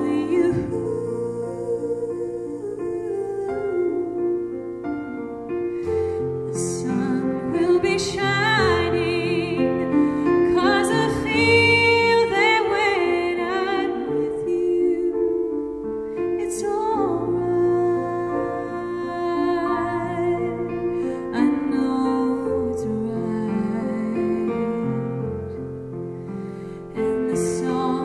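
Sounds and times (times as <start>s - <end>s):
woman singing: 0.0s - 25.5s, 26.9s - 28.0s
digital piano: 0.0s - 28.0s.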